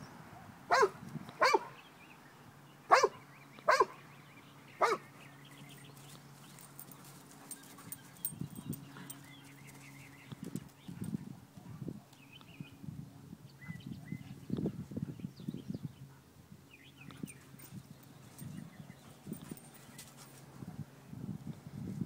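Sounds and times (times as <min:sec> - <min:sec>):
dog barking: 0:00.4 - 0:01.8, 0:02.9 - 0:04.0, 0:04.8 - 0:05.0.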